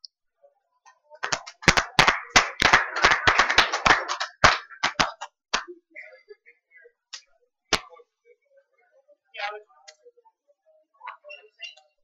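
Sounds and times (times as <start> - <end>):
people clapping unevenly: 1.2 - 5.7.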